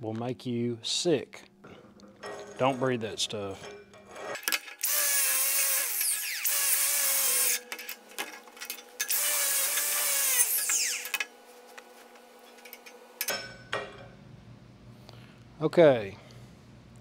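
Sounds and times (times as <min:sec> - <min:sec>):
angle grinder on steel: 0:04.1 - 0:11.3.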